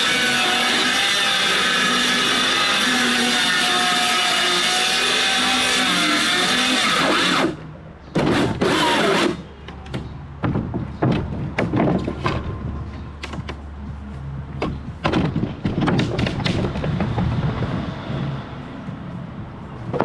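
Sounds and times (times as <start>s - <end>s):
circular saw cutting wood: 0.0s - 7.6s, 8.2s - 9.4s
wood knocking and clattering: 9.7s - 13.6s, 14.6s - 17.7s.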